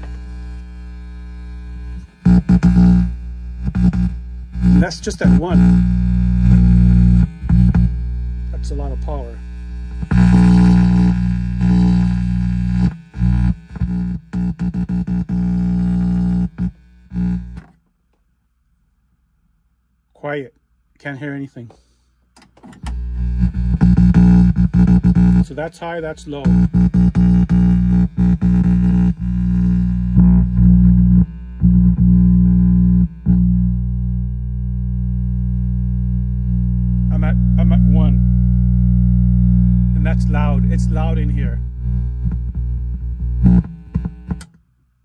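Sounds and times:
amplifier mains hum and buzz: 0:00.0 - 0:45.0.

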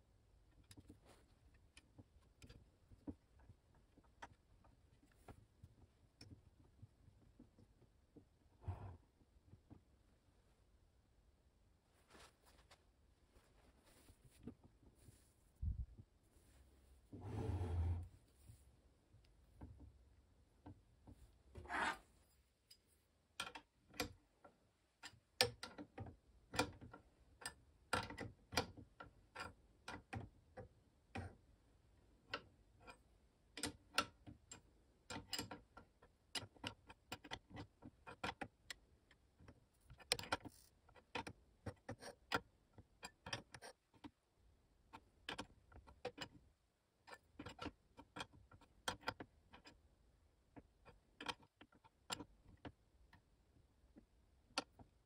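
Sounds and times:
scraping rustle: 0:11.9 - 0:15.6.

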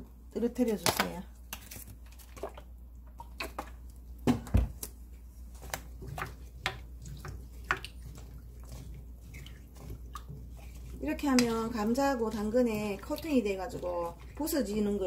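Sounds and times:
water splashing in pot: 0:05.6 - 0:15.0.

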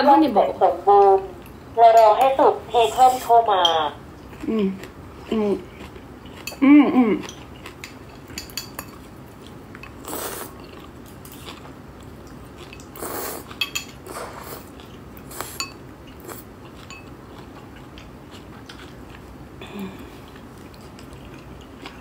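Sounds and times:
noodles being slurped: 0:10.0 - 0:11.7, 0:12.9 - 0:16.5.

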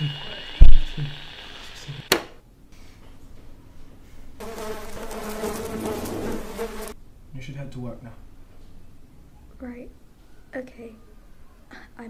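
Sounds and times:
steady buzz: 0:00.0 - 0:02.4
sharp click: 0:02.0 - 0:02.4.

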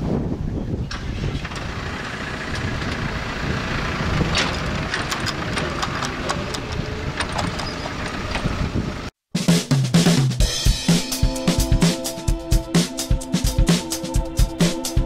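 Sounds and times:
vehicle engine running: 0:01.0 - 0:09.1.

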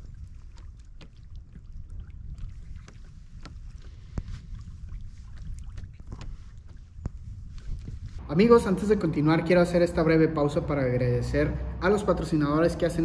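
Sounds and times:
wind buffeting microphone: 0:00.0 - 0:08.3.

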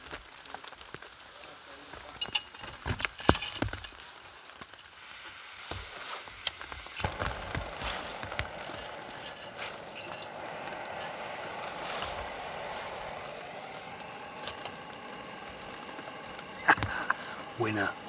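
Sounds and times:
gas burner hissing: 0:04.7 - 0:18.0.

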